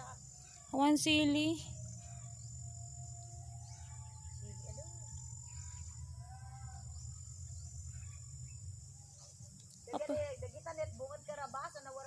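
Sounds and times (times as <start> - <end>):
faint bird calls: 0.0 - 10.3
insects chirring: 0.0 - 12.0
low steady rumble: 0.0 - 12.0.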